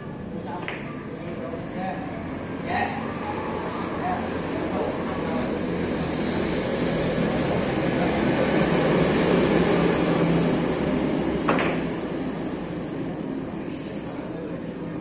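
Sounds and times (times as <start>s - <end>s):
cue striking billiard ball: 11.4s - 12.0s.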